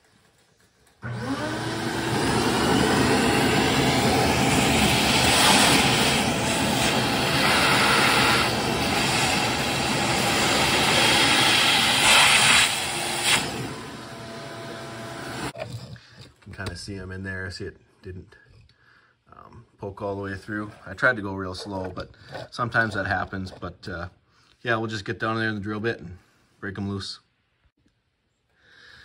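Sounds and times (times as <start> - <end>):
vacuum sucking up metal shavings: 0.4 - 15.6
vacuum cleaner motor whine: 1.0 - 15.6.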